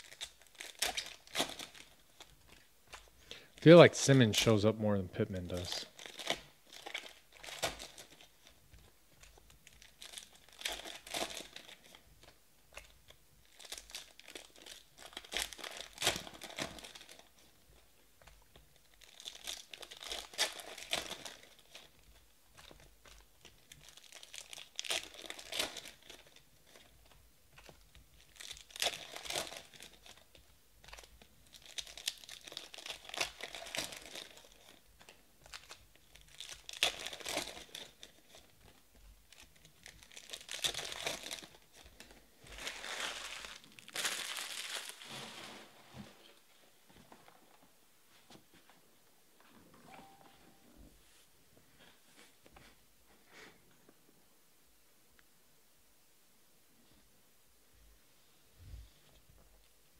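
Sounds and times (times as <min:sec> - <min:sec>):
foil wrappers tearing and crinkling: 0:00.0 - 0:02.4, 0:05.5 - 0:08.6, 0:09.3 - 0:17.5, 0:18.8 - 0:26.9, 0:27.6 - 0:45.8.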